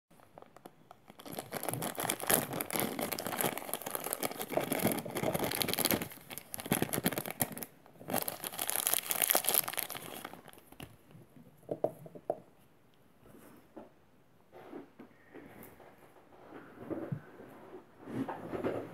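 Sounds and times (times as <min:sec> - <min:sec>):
plastic bag crinkling: 0:00.2 - 0:11.1.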